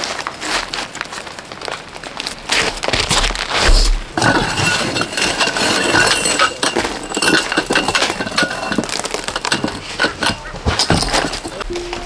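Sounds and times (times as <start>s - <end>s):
metal tent poles clinking: 4.2s - 12.0s.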